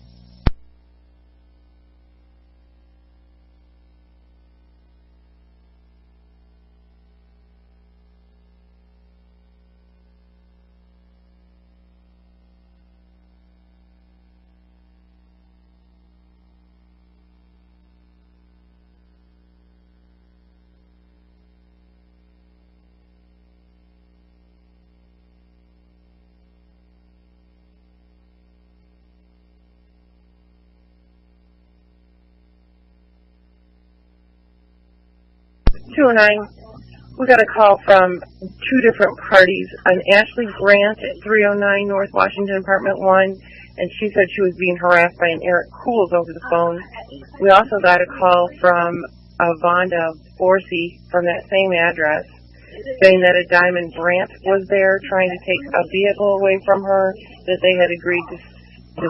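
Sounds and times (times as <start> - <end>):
faint electrical hum: 0.0 - 59.0
radio transmission click: 0.4 - 0.8, 35.7 - 36.0
voice over radio: 35.8 - 59.0.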